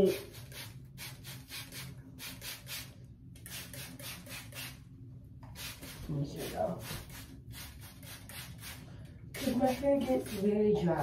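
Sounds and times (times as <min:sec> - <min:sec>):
spray bottle spritzing: 0:00.2 - 0:04.8, 0:05.5 - 0:08.8.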